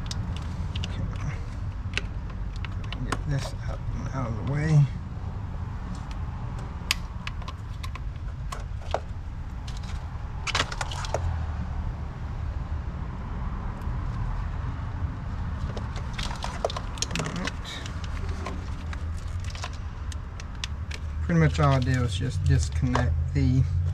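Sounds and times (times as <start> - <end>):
hose fittings clicking and clacking: 0.0 - 3.8, 15.6 - 22.1
steady low rumble: 0.0 - 23.9.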